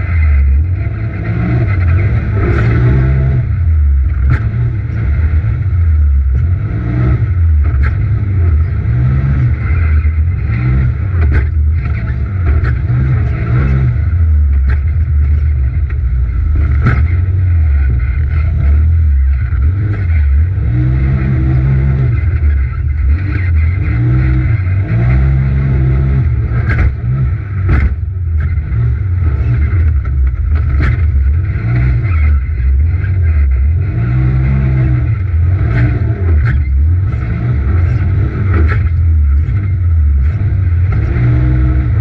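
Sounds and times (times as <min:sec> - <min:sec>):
engine revving: 0:00.0 - 0:42.0
chassis knocks over bumps: 0:11.1 - 0:13.8, 0:14.4 - 0:18.8, 0:26.5 - 0:28.8, 0:29.4 - 0:31.9.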